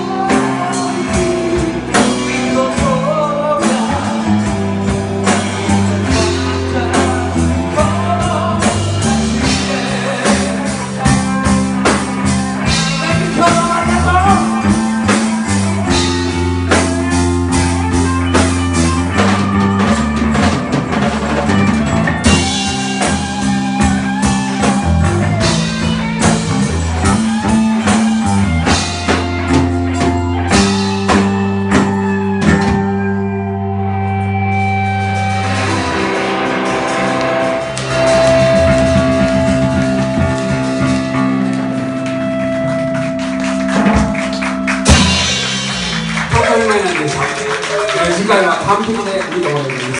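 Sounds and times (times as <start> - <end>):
rock band playing a ballad: 0.0 - 49.9
drum hits: 42.6 - 47.2.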